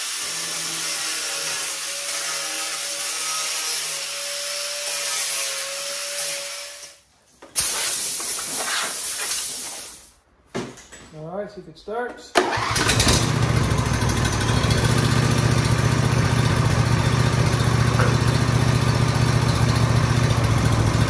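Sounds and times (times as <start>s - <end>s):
compressed air blow gun hissing: 7.6s - 10.1s.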